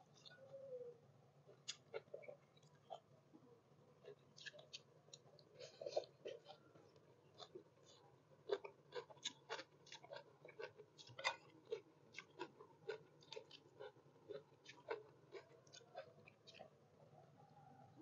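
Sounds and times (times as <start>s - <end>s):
person chewing crisp vegetables: 1.5s - 3.1s, 4.0s - 16.8s.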